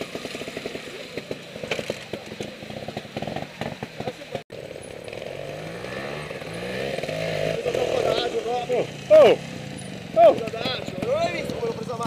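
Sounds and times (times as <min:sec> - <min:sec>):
motorcycle engine popping at low revs: 0:00.0 - 0:05.6, 0:10.1 - 0:12.0
engine revving in rising pulls: 0:05.0 - 0:11.7.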